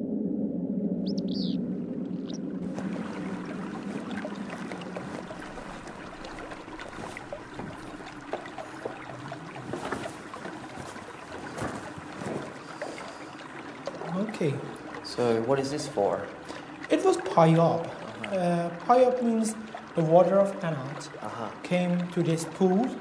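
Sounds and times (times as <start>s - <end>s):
low music drone: 0.0s - 7.3s
water drips and splashes: 1.3s - 23.0s
water running and trickling: 2.3s - 23.0s.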